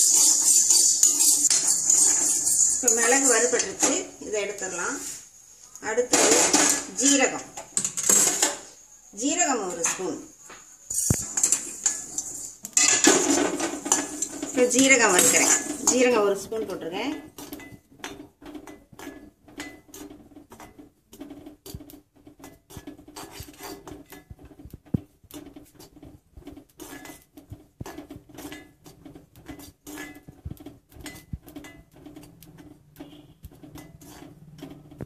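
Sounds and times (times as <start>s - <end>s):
metal spoon scraping a pan: 0.0s - 35.0s.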